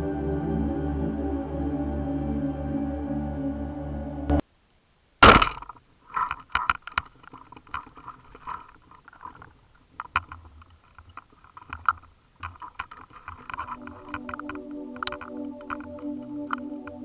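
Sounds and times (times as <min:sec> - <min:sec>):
speargun shot crack: 0:05.2 - 0:05.7
shaft and line clicking underwater: 0:05.6 - 0:17.0.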